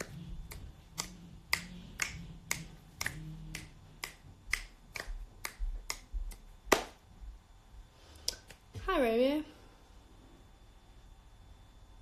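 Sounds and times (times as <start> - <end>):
fingers snapping: 0.0 - 7.0.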